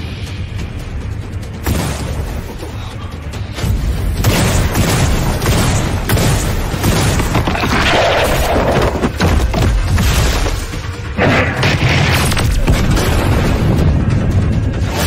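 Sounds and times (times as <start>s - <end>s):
background music: 0.0s - 15.0s
booming flames and blasts: 3.5s - 15.0s.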